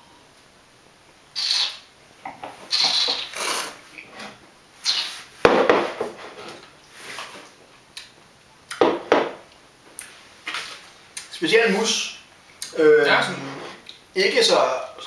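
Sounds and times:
spitting into a glass: 0:01.4 - 0:01.9, 0:02.7 - 0:03.8, 0:04.8 - 0:05.2
glassware knocking on tabletop: 0:08.8 - 0:09.4.

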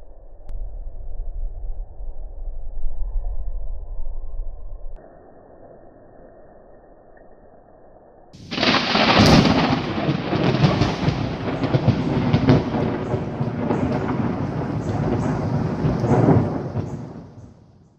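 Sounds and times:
thunder crack and rumble: 0:08.4 - 0:17.9.

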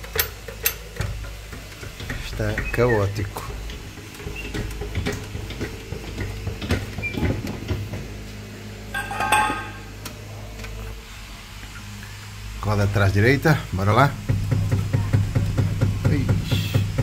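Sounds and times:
metal clang ringing: 0:09.0 - 0:09.9
metal parts clinking: 0:09.0 - 0:09.9.

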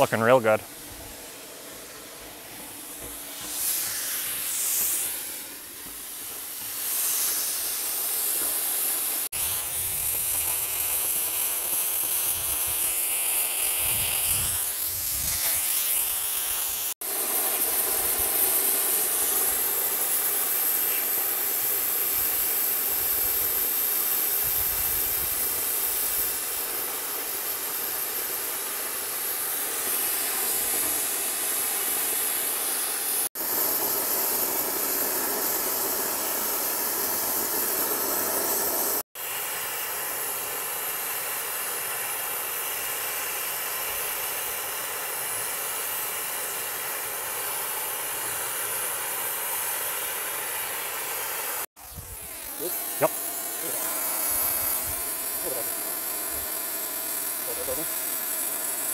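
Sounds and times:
cutting torch hissing: 0:00.0 - 0:58.9.

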